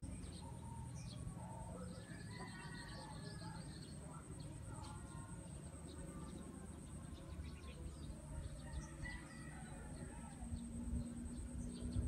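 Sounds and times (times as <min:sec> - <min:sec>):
small birds chirping: 0:00.0 - 0:12.0
rooster crowing: 0:08.7 - 0:10.4.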